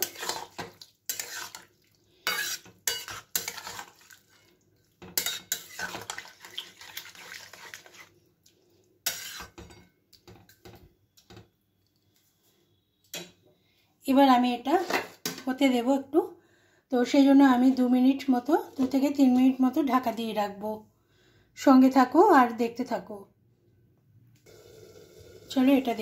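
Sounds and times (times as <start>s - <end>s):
metal spatula scraping a pan: 0.0s - 8.2s, 9.0s - 9.8s, 14.7s - 15.4s.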